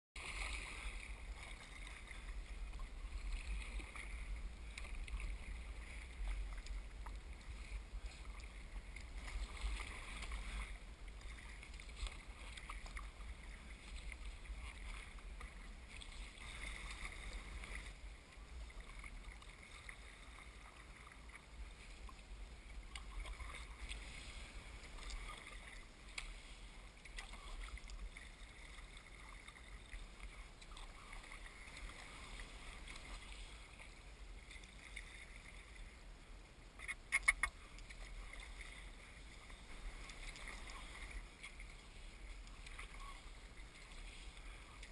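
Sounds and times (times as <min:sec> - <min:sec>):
paddle strokes splashing: 0:00.2 - 0:44.9
water washing along hull: 0:00.2 - 0:44.9.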